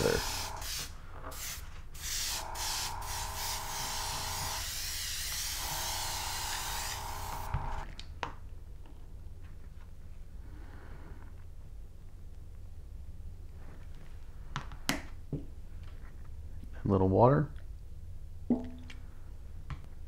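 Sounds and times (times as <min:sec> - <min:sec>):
airbrush hissing in bursts: 0:00.0 - 0:07.8.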